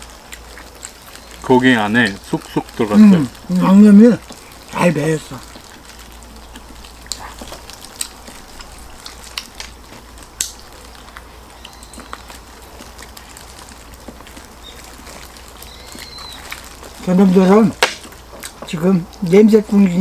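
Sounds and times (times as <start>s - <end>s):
chewing and tearing meat: 0.0s - 20.0s
wet smacks and clicks: 4.2s - 20.0s.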